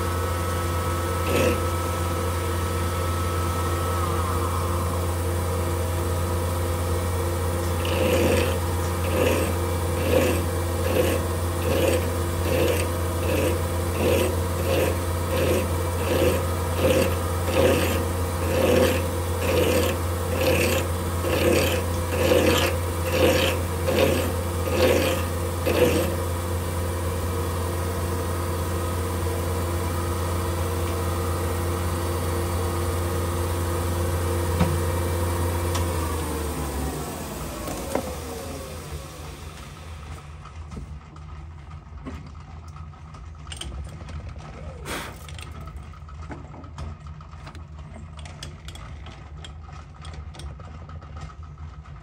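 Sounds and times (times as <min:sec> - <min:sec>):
lathe humming: 0:00.0 - 0:40.4
hand file strokes on metal: 0:01.2 - 0:02.1, 0:07.6 - 0:26.4.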